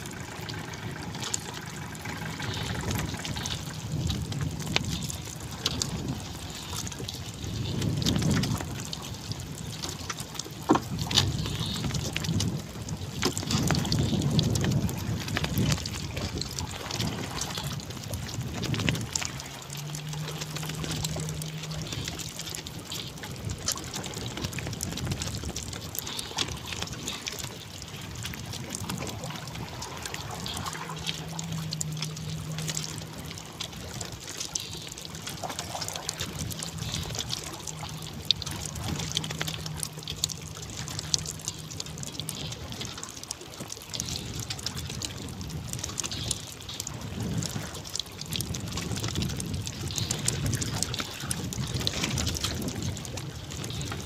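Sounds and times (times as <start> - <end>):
water splashing around a boat: 0.0 - 54.0
low steady hum: 28.8 - 42.9.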